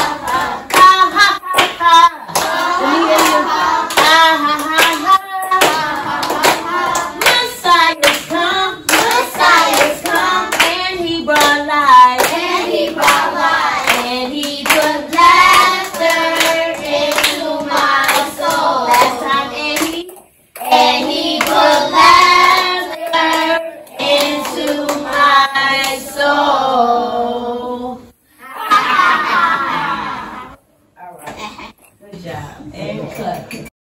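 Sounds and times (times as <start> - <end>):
children singing: 0.0 - 20.0, 20.6 - 28.0
hands clapping in rhythm: 0.0 - 26.0.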